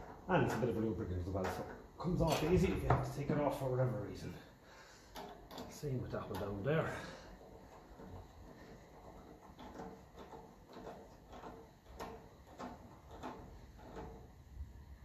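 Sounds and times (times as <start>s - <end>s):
faint clicks of hose clip tightening: 5.1s - 6.5s.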